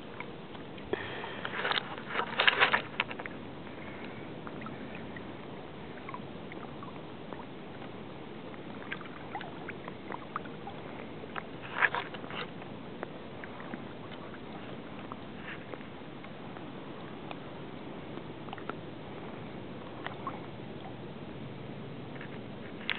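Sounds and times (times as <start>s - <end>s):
boat moving over water: 0.0s - 22.9s
light splashes and knocks: 0.5s - 3.4s.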